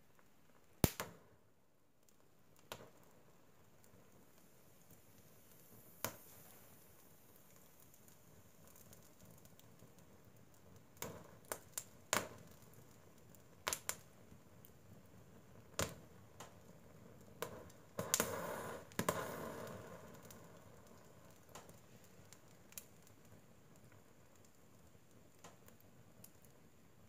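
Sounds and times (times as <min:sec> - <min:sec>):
wood fire crackling and popping: 0:00.0 - 0:27.0
fire hissing: 0:04.2 - 0:14.2, 0:15.4 - 0:24.9.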